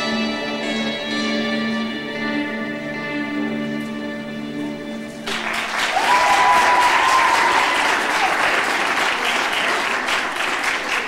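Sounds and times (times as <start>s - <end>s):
audience applauding and cheering: 5.2s - 11.0s.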